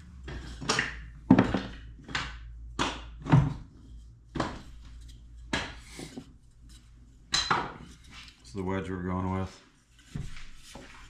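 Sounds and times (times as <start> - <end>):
wooden wedges clacking together: 0.2 - 8.5.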